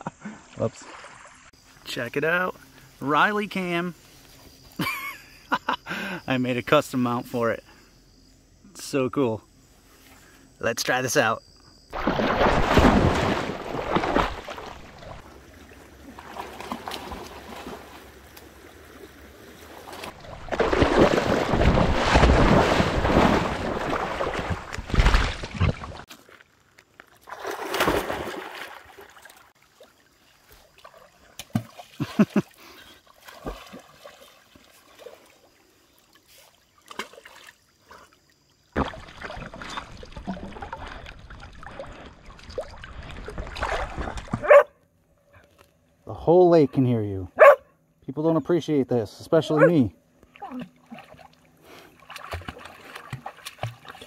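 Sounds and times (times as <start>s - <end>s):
small splashes and lapping: 0.0s - 1.8s, 11.9s - 44.6s, 50.2s - 54.0s
water sloshing and splashing: 0.2s - 1.8s, 11.9s - 44.7s, 50.2s - 54.0s.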